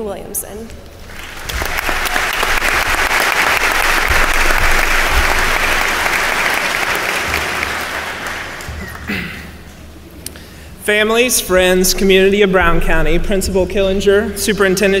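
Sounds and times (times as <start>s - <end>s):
audience applauding: 1.0s - 9.7s.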